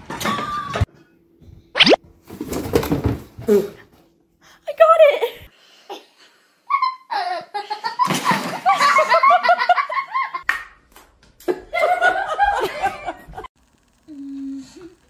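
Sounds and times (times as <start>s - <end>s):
people laughing: 6.8s - 10.4s, 11.4s - 13.5s.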